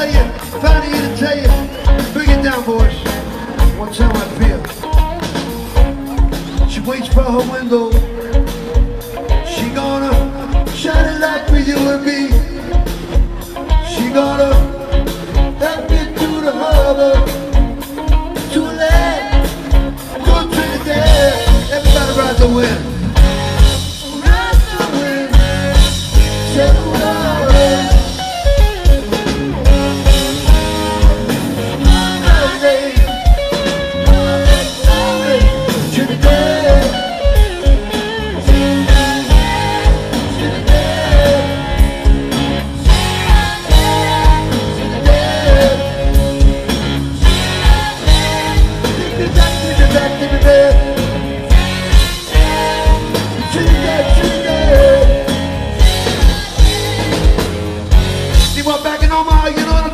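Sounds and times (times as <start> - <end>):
bass guitar: 0.0 - 59.9
drum kit beat: 0.0 - 59.9
electric guitars: 0.0 - 59.9
woman singing lead vocal: 18.5 - 21.5, 24.0 - 25.7, 26.5 - 28.2, 38.5 - 42.0, 42.9 - 46.5, 47.5 - 51.0, 56.0 - 57.5.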